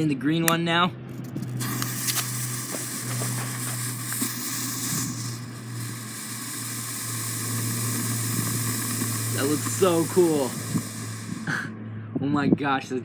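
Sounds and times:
steady low hum: 0.0 - 13.0
smoke bomb hissing: 1.4 - 11.7.

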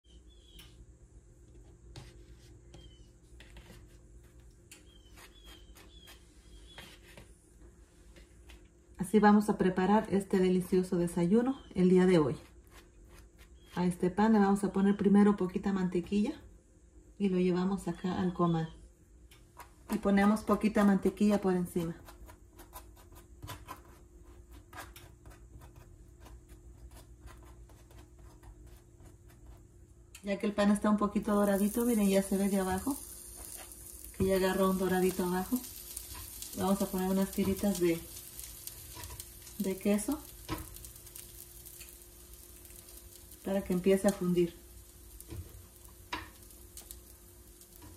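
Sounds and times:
small bird chirping: 0.0 - 0.8, 2.6 - 3.2, 4.8 - 7.0, 13.5 - 13.9.

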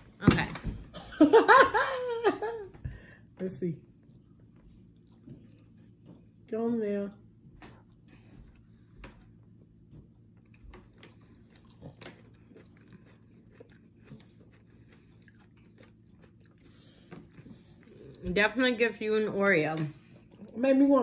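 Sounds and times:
low steady hum: 0.0 - 21.0
chewing and crunching ice cream bar: 3.9 - 6.4, 7.6 - 18.2.

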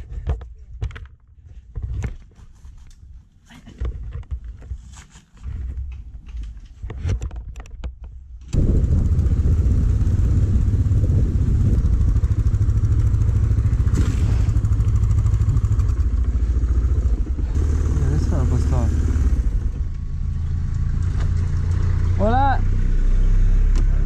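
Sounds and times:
motorcycle engine running: 8.5 - 24.0.

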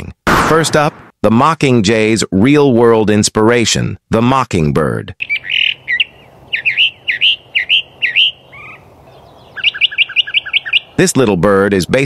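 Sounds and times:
mockingbird singing: 5.2 - 11.4.

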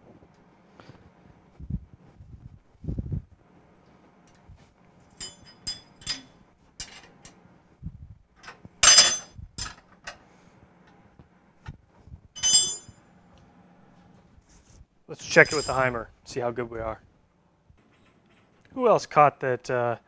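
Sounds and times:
metal tools clinking and tapping: 5.1 - 7.4, 8.4 - 10.2, 12.4 - 13.0, 15.2 - 16.0
loud ringing metal clinks: 5.2 - 6.4, 8.8 - 9.8, 12.4 - 13.0, 15.2 - 16.0.

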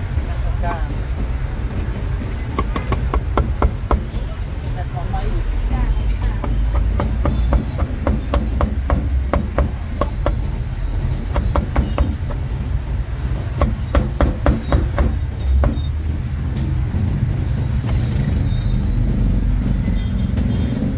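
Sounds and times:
cleaver chopping on wooden board: 2.6 - 4.2, 6.4 - 10.5, 13.6 - 15.8.

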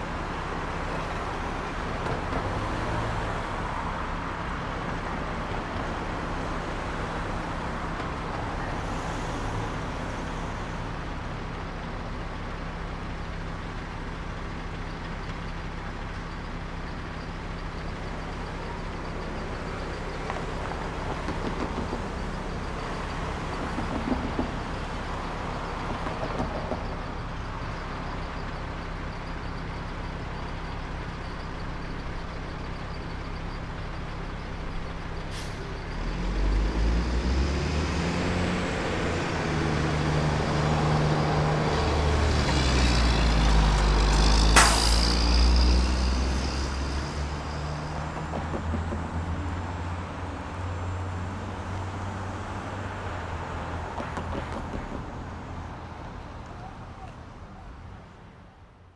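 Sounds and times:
vehicle approaching: 17.4 - 58.9
brief sharp hiss: 44.5 - 45.2.

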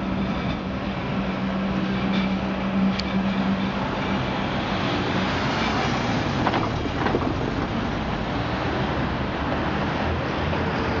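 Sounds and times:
rack railcars running: 0.0 - 8.1.

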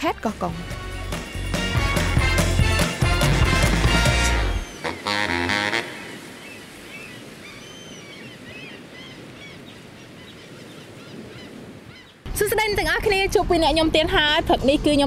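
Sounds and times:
intro music: 0.6 - 6.1
high chirping bird calls: 4.3 - 12.2.

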